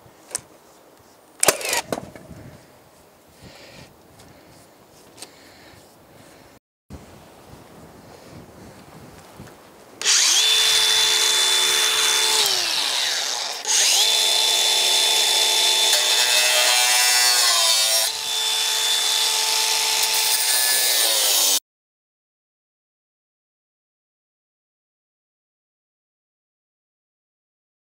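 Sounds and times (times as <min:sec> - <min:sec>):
cordless drill whining: 0:10.0 - 0:21.6.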